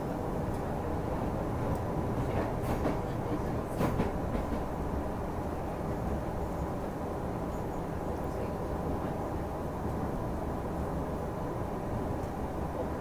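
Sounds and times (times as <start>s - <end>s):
train wheels rumbling: 0.0s - 13.0s
sharp train clacks: 1.7s - 4.8s.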